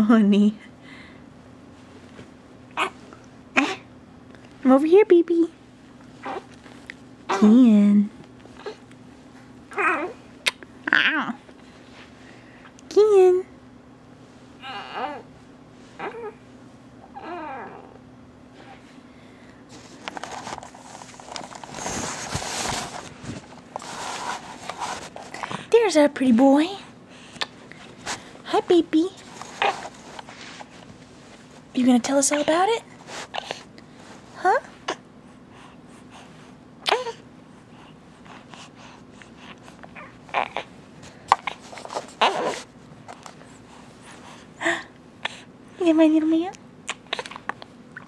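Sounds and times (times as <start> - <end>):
infant cooing and grunting: 9.7 - 10.2, 14.6 - 15.2
camera handling rustling: 19.9 - 23.9.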